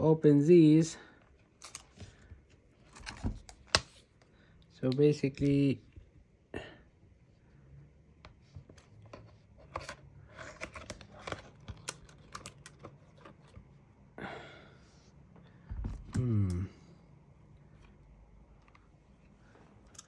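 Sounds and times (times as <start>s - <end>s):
laptop parts clicking and tapping: 10.6s - 13.6s.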